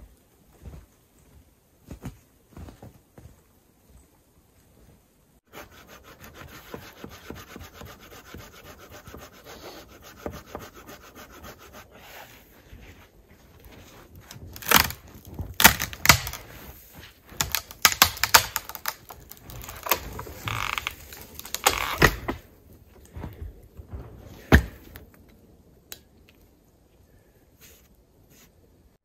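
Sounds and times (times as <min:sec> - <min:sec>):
dry wood cracking and snapping: 0:14.2 - 0:16.6, 0:17.3 - 0:22.4.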